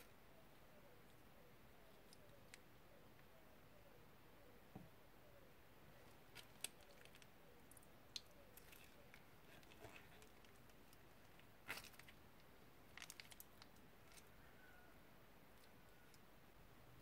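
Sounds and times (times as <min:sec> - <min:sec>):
plastic bag crinkling: 0:12.9 - 0:14.2.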